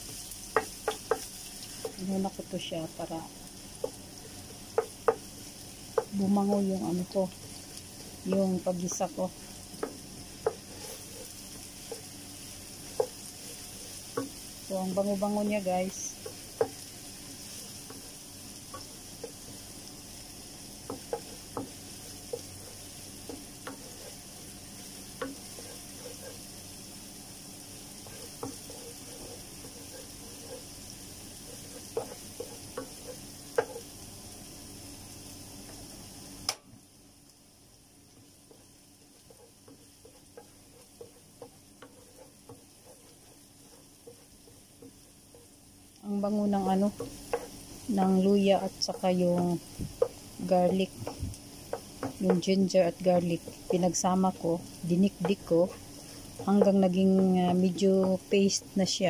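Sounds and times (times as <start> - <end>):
paste sizzling in hot oil: 0.0 - 59.0
wooden spoon knocking pan: 0.5 - 2.0, 48.5 - 52.6.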